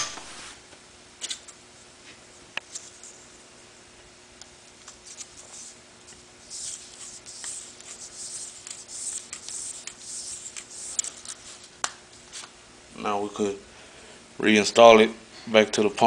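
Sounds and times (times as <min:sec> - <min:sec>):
hands rubbing metal part: 0:04.9 - 0:12.5.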